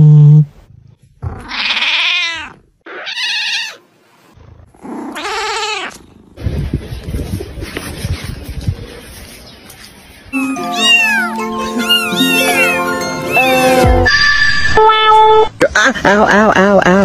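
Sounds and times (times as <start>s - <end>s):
cat meowing: 1.3s - 3.8s, 10.4s - 14.2s.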